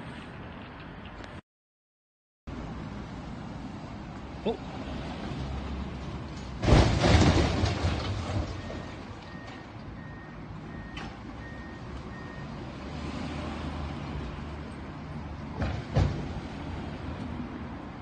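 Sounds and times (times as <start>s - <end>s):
debris crashing down: 6.6s - 9.2s
reversing alarm beeping: 8.6s - 12.5s.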